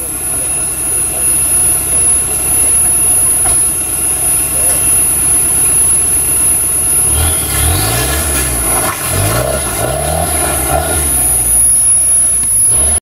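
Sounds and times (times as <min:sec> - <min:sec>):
high-pitched whine: 0:00.0 - 0:13.0
engine revving: 0:06.9 - 0:13.0.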